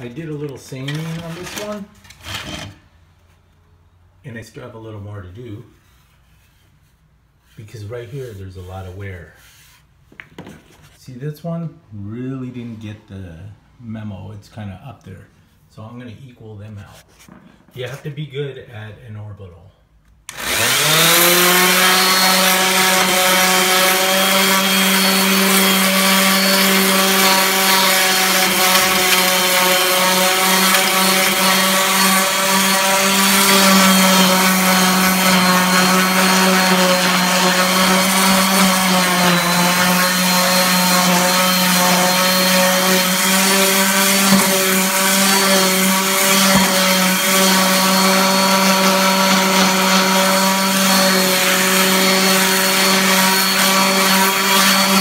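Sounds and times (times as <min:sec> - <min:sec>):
orbital sander on wood: 0:20.3 - 0:55.0.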